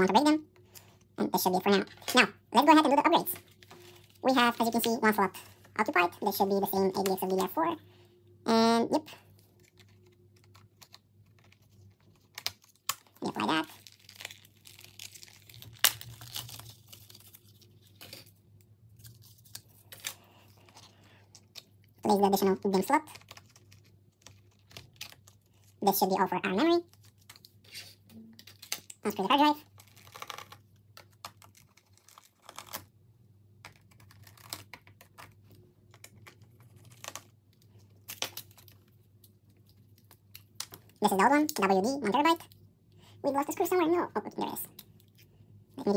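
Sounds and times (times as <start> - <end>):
plastic packaging crinkling: 0.1 - 7.8, 9.1 - 42.6
plastic packaging snapping: 12.2 - 18.3, 28.3 - 29.0, 38.0 - 38.9.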